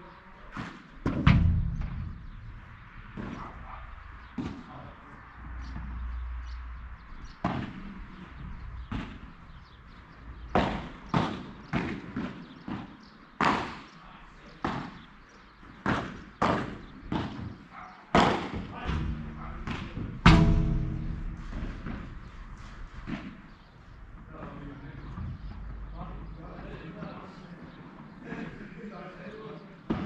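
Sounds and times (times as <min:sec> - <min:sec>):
padel ball struck with rackets: 0:18.2 - 0:22.4
ball bouncing: 0:18.9 - 0:23.6.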